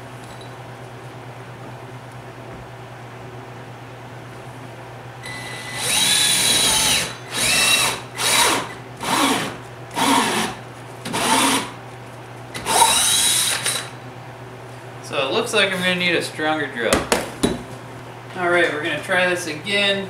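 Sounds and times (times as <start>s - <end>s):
cordless drill whirring: 5.2s - 11.7s, 12.6s - 13.9s.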